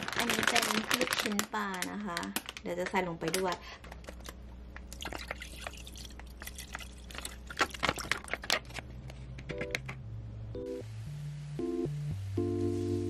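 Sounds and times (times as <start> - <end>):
liquid pouring into pot: 4.8 - 8.4.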